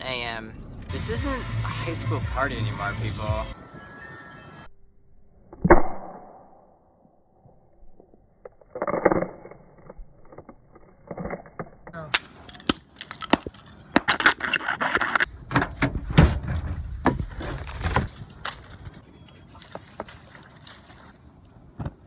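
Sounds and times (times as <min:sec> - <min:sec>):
man's voice: 0:00.9 - 0:03.6
wind rumbling on microphone: 0:15.2 - 0:19.1.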